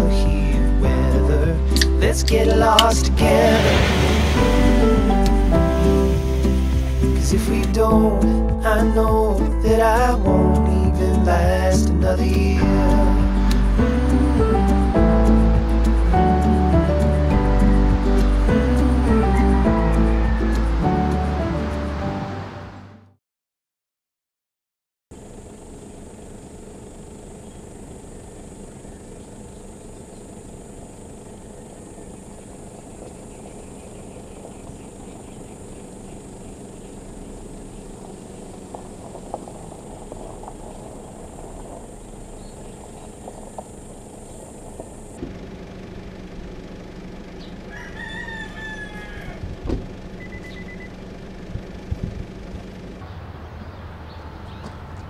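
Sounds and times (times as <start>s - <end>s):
car engine running: 0.0s - 22.8s, 25.1s - 55.0s
rooster crowing: 18.5s - 21.3s, 31.4s - 32.4s, 47.6s - 49.6s
sharp thump: 49.6s - 49.9s.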